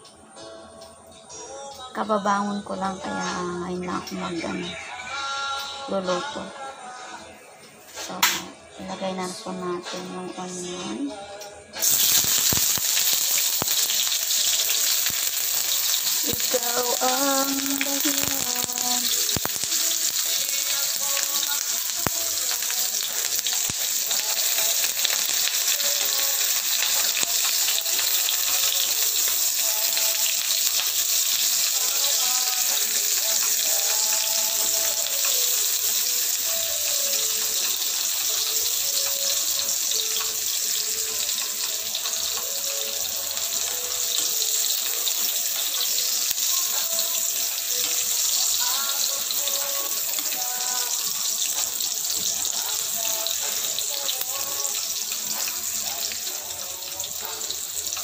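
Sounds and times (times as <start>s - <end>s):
onions sizzling in oil: 11.8s - 58.0s.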